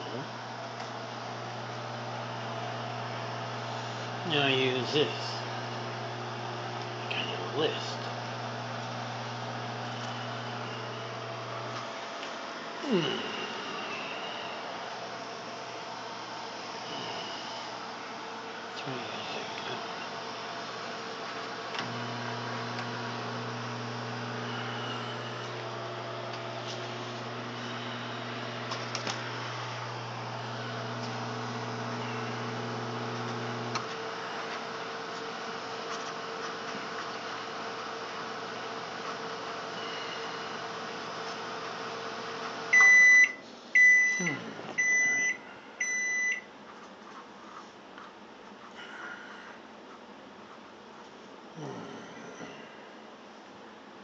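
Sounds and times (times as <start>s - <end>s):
microwave oven humming: 0.0s - 46.6s, 51.5s - 53.2s
microwave beeps: 42.7s - 46.5s.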